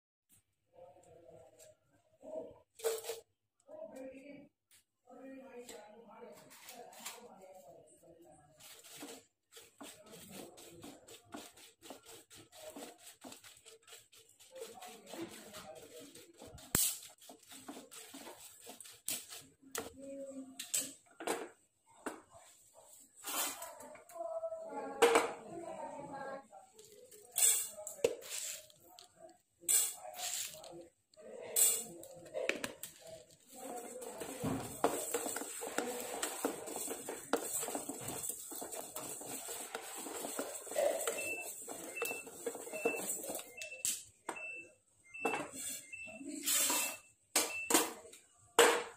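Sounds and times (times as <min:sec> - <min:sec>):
spatula scraping a pan: 0:08.7 - 0:19.6, 0:33.5 - 0:43.6.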